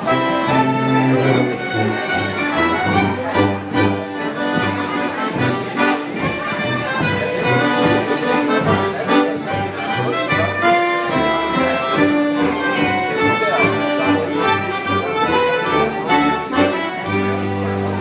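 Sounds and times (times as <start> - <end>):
folk dance band playing: 0.0 - 18.0
pulsing tuba bass: 0.0 - 18.0.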